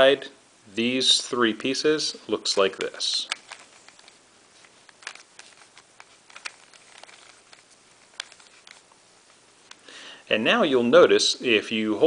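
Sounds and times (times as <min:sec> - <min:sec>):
puzzle cube plastic clicks: 0:02.7 - 0:09.0.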